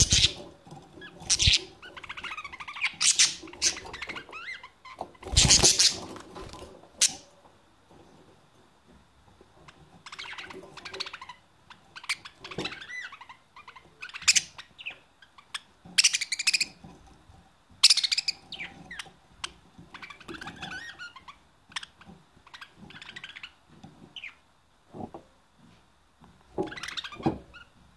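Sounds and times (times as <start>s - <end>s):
budgerigars chattering and warbling: 0.0s - 6.1s, 17.8s - 23.6s.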